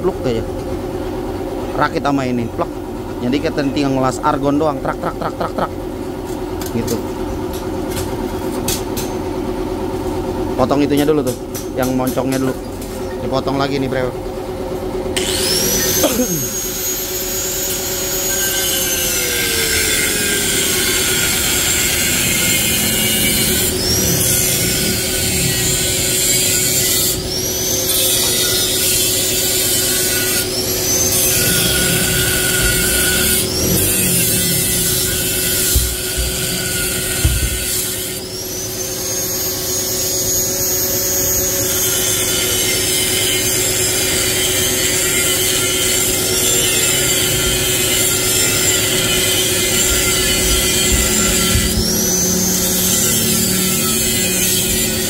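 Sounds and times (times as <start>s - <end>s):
angle grinder cutting steel: 15.2s - 55.0s.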